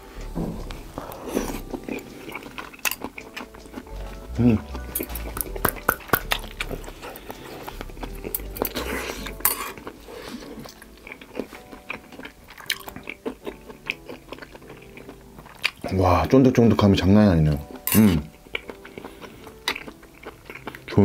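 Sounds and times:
wet chewing with clicks: 0.2 - 16.8, 17.5 - 21.0.

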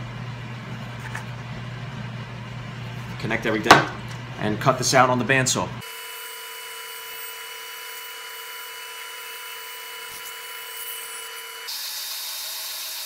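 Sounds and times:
bandsaw whining: 5.8 - 13.0.

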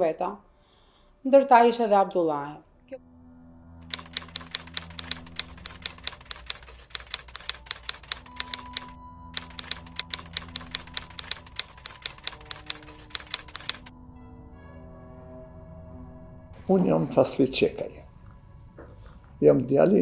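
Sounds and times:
low music drone: 2.6 - 20.0
typewriter keystrokes: 3.9 - 13.9.

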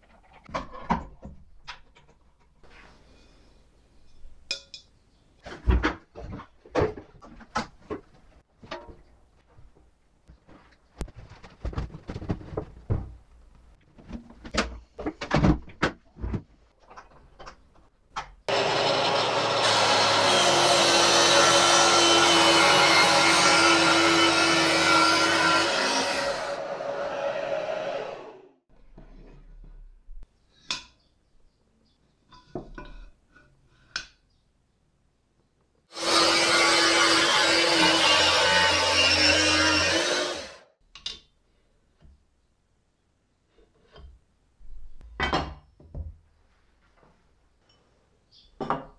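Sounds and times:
vacuum cleaner running: 18.5 - 28.5.

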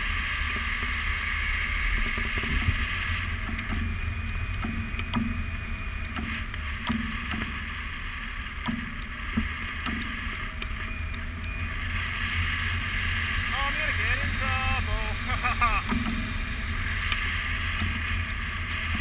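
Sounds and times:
wind rumble on microphone: 0.0 - 13.5.

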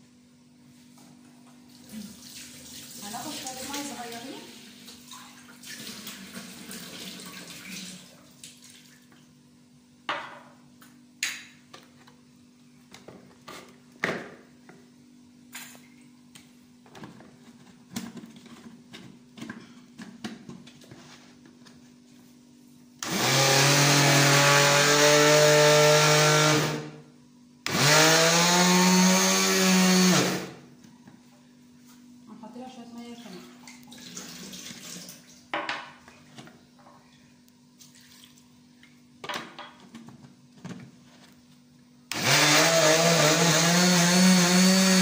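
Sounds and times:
blender motor running: 23.0 - 27.0, 27.6 - 30.6, 42.1 - 45.0.

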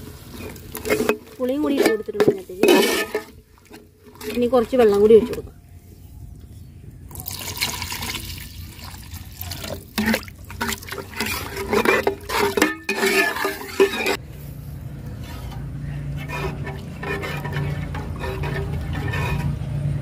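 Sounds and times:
water poured into pot: 7.1 - 14.1.

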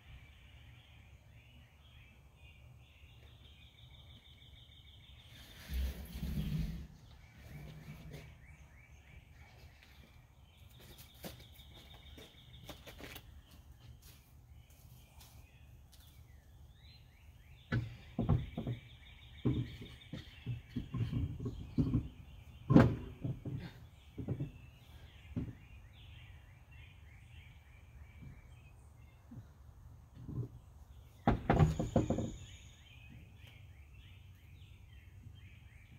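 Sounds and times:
birds chirping and trilling: 0.0 - 35.9
dull knocks and thumps: 17.7 - 25.7, 31.2 - 32.5.

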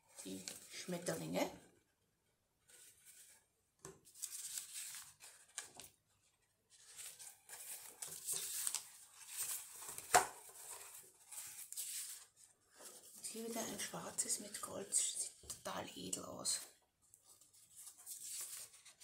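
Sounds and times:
paper rustling and crinkling: 2.6 - 15.7, 16.4 - 19.0.

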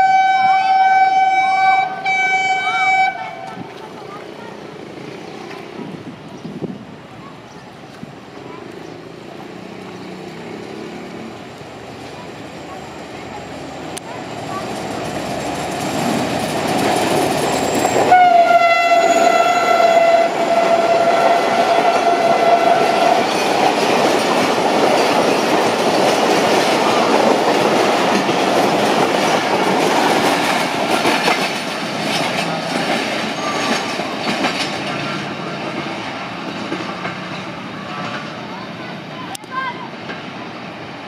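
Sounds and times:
train horn blast: 0.0 - 3.6, 18.0 - 23.2
train coaches rushing past: 0.0 - 41.0.

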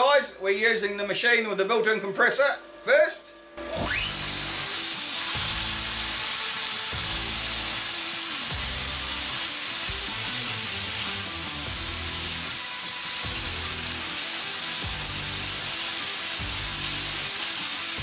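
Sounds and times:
background music: 0.0 - 18.0
air compressor: 3.6 - 18.0
plasma cutter arc hissing: 3.7 - 18.0.

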